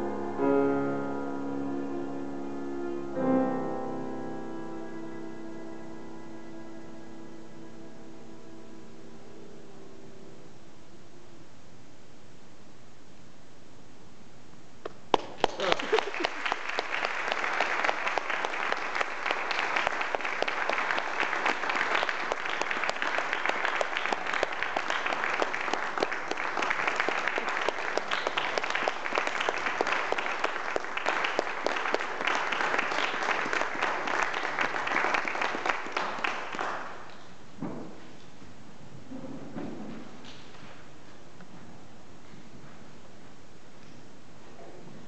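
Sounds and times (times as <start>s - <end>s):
audience applauding: 14.9s - 37.2s.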